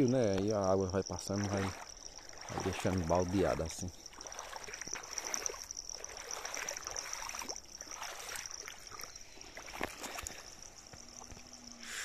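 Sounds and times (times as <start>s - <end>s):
rush of running water: 1.3s - 10.5s.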